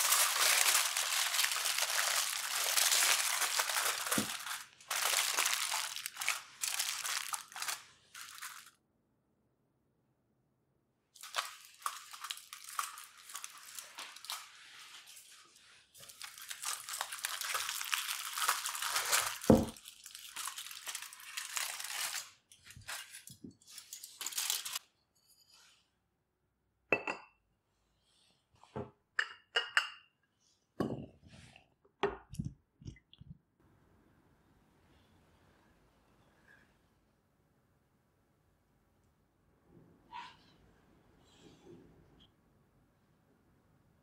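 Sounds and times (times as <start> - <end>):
aluminium foil crinkling: 0.0 - 8.8, 11.2 - 24.8
saucer clinking against mug: 29.2 - 30.0.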